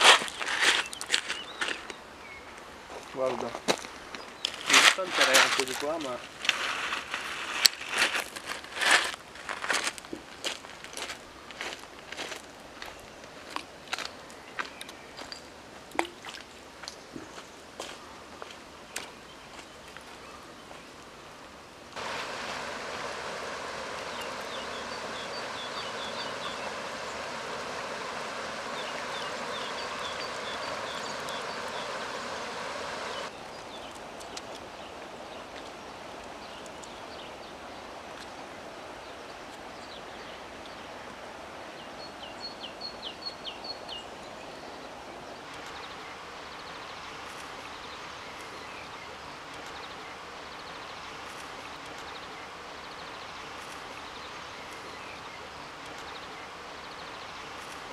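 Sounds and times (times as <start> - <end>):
river water running over gravel: 0.0 - 57.9
small bird calling: 22.0 - 33.3.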